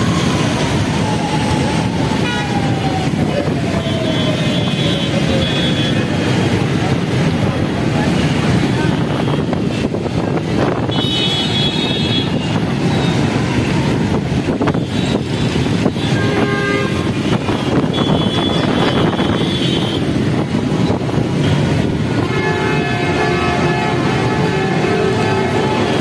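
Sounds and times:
traffic engines running: 0.0s - 26.0s
vehicle horns honking: 10.8s - 13.2s, 14.7s - 20.2s, 21.4s - 26.0s.

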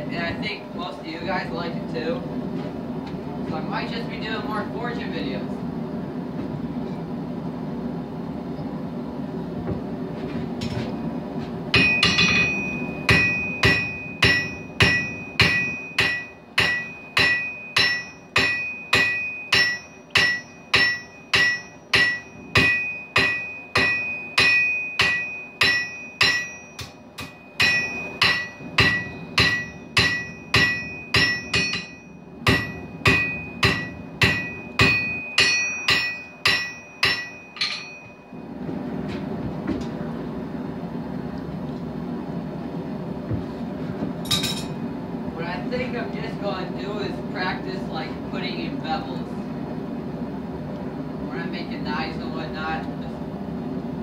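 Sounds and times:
hammer striking steel on anvil: 11.7s - 38.4s, 44.3s - 44.8s.

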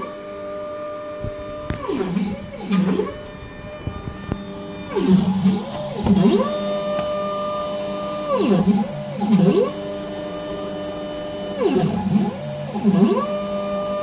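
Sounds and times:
stepper motor whine: 0.0s - 14.0s.

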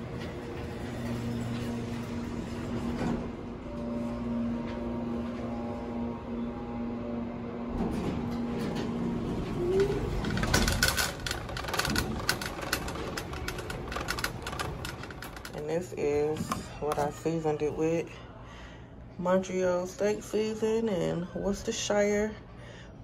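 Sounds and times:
elevator hum: 0.0s - 22.1s
shopping cart wheels rattling: 8.8s - 17.2s.

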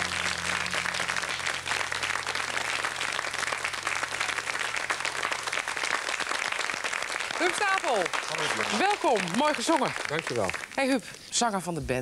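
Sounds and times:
low steady hum: 0.0s - 5.7s
audience applauding: 0.0s - 11.0s.

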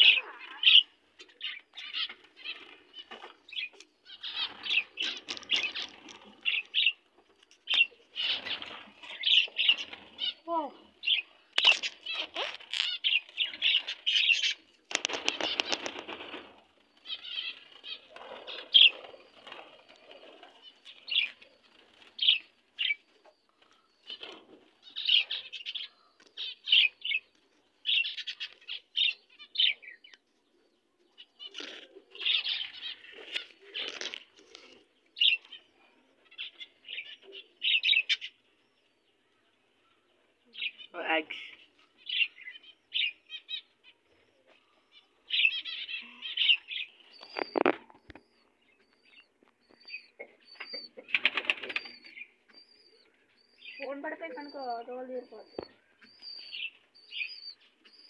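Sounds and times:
lovebirds chirping: 0.0s - 58.0s
wings flapping: 11.6s - 22.5s, 51.0s - 52.1s.

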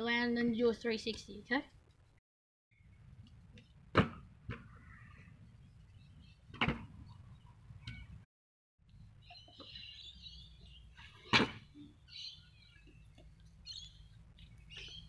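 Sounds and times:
birds chirping: 4.6s - 8.2s, 8.9s - 15.0s.

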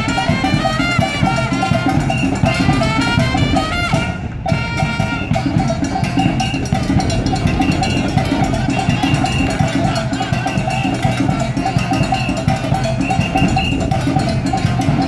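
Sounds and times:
upbeat salsa dance music: 4.6s - 15.0s.

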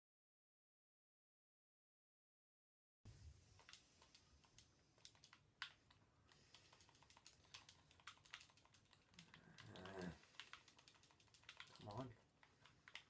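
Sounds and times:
typing on computer keyboard: 3.6s - 13.0s.

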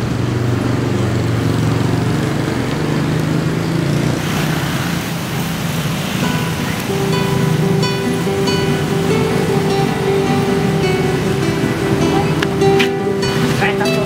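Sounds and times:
vehicle engine humming: 0.0s - 14.0s.

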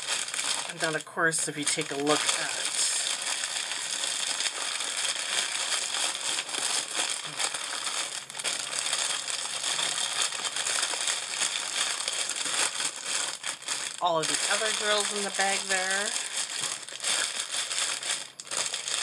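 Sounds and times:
plastic bag crinkling: 0.0s - 19.0s.

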